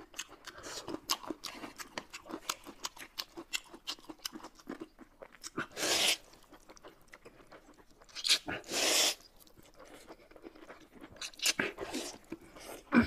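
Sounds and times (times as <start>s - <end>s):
wet chewing clicks: 0.0s - 12.9s
slurping noodles: 5.6s - 6.4s, 8.3s - 9.3s.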